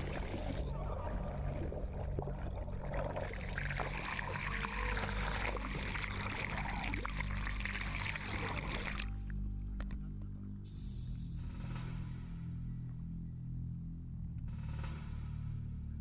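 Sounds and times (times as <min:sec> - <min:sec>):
low hum: 0:00.0 - 0:16.0
crackling underwater hiss: 0:10.6 - 0:11.5.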